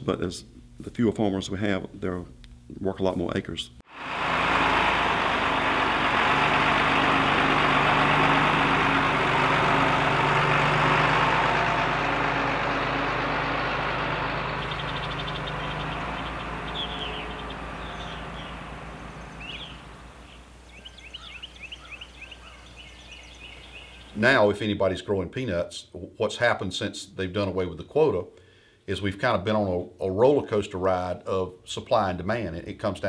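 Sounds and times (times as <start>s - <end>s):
large engine running: 3.9s - 24.2s
small birds chirping: 14.2s - 24.4s.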